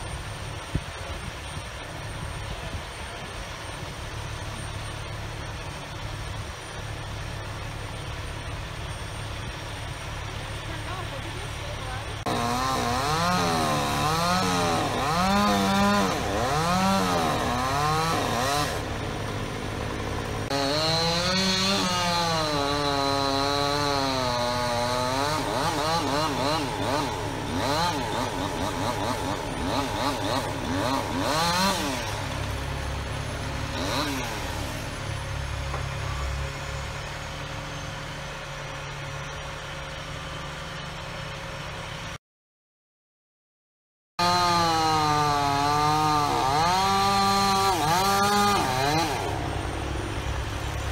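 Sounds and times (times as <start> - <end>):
crane engine running: 0.0 - 42.2, 44.2 - 50.9
chainsaw revving: 10.2 - 35.4, 44.2 - 50.9.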